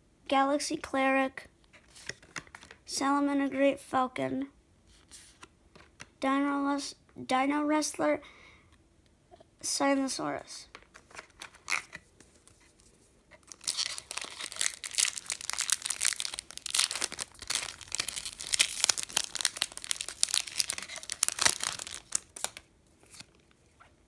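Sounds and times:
foil wrapper crinkling and tearing: 13.4 - 23.6.

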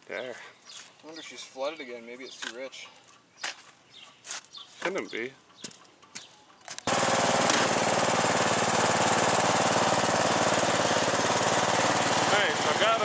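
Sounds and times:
lawn mower engine running: 6.9 - 13.0.

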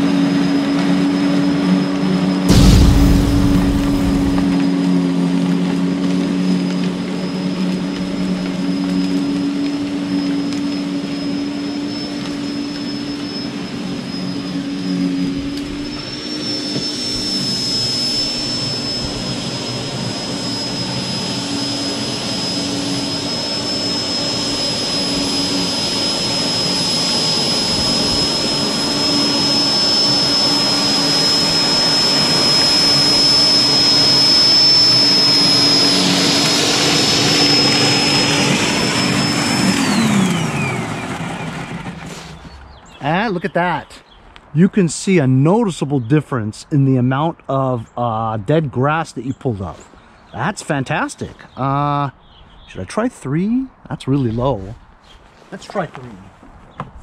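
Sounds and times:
electric dethatcher motor whining: 20.8 - 42.0.

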